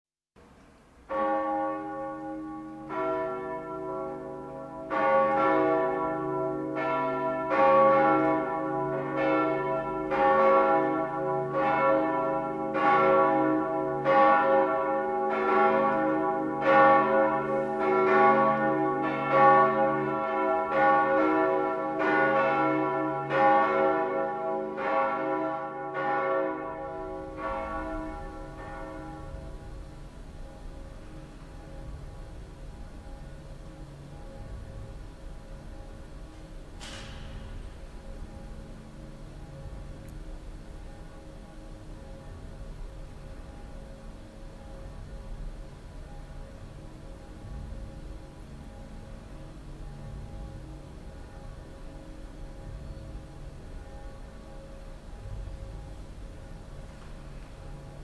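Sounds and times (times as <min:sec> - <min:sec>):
church bells ringing: 0:01.0 - 0:58.0.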